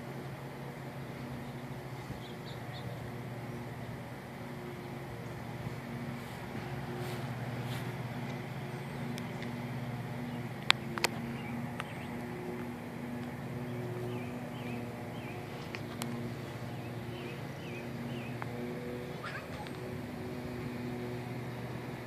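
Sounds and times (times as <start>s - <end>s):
low machine hum: 0.0s - 22.0s
bird chirping: 1.4s - 4.0s, 8.2s - 12.3s, 13.3s - 18.5s, 19.1s - 19.9s.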